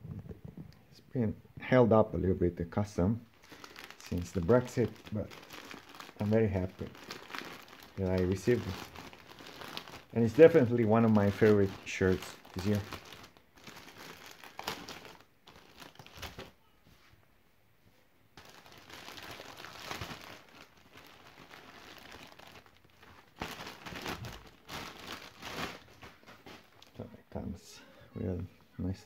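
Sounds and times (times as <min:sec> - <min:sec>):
plastic packaging crinkling and tearing: 0:03.3 - 0:16.6, 0:18.4 - 0:27.0.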